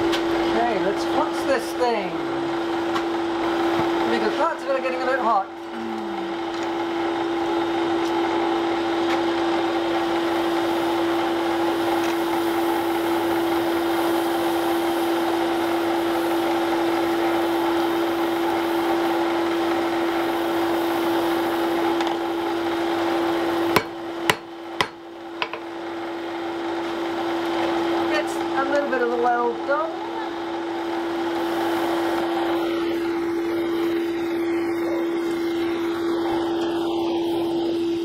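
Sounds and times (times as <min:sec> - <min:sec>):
hammer striking iron on anvil: 0:23.8 - 0:25.6
whirring drone: 0:31.3 - 0:38.0.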